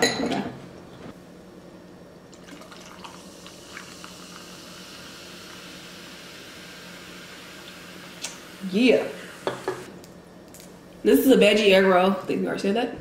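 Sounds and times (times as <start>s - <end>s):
soda fizzing: 2.3s - 8.6s
soda pouring over ice: 2.4s - 6.7s.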